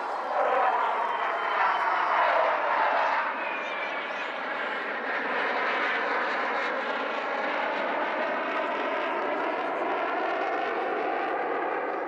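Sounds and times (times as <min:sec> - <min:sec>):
fighter jets roaring overhead: 0:00.0 - 0:12.0.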